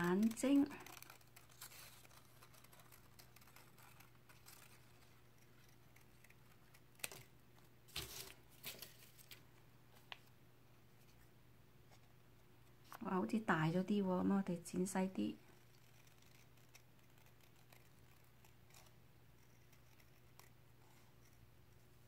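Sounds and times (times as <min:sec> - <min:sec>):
scissors snipping paper: 0:00.0 - 0:09.4, 0:15.1 - 0:20.6.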